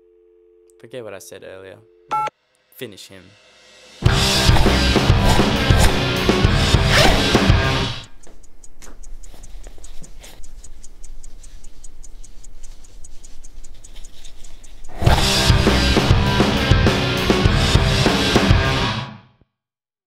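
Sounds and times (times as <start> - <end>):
loud band music with drums: 3.8 - 8.0, 15.1 - 19.0
quick even ticking: 4.4 - 15.6.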